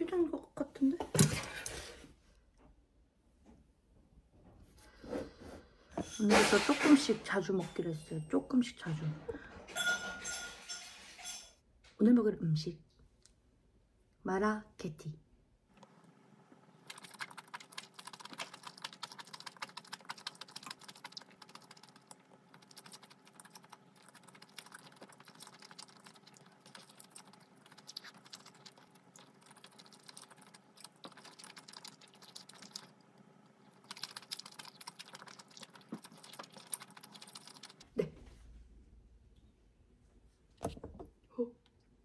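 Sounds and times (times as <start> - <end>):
chewing noodles: 16.8 - 37.9.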